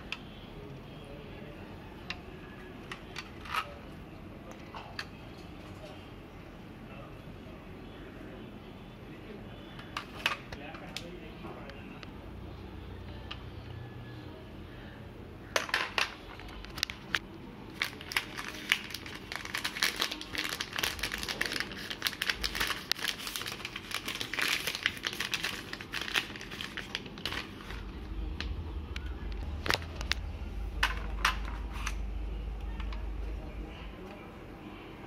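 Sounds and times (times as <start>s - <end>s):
plastic bag crinkling: 16.4s - 28.1s.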